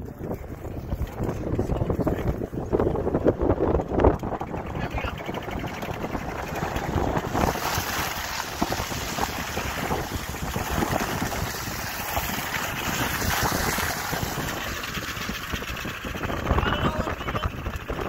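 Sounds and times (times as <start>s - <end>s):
wind rushing over microphone: 0.0s - 18.0s
tyres splashing through puddles: 6.2s - 16.0s.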